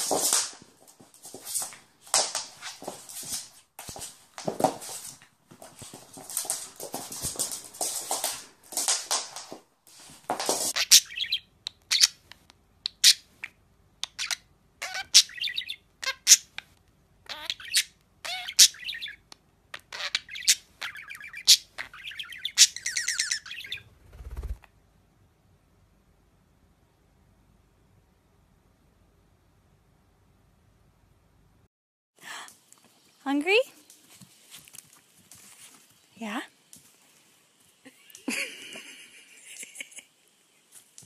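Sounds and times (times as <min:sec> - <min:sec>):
dog and cat scuffling: 0:00.0 - 0:10.8, 0:33.8 - 0:36.2
budgerigar chirping and chattering: 0:10.8 - 0:12.3, 0:12.9 - 0:16.6, 0:17.2 - 0:23.9.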